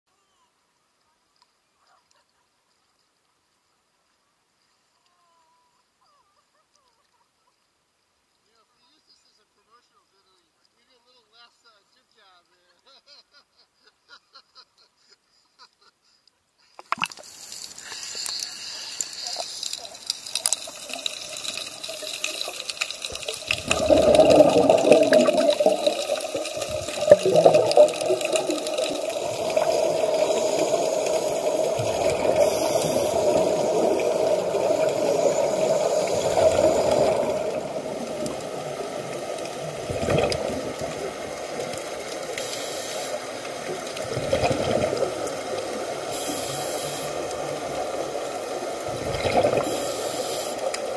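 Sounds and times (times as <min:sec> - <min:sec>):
water splashing against camera: 0:16.8 - 0:50.9
muffled underwater rushing: 0:19.3 - 0:50.9.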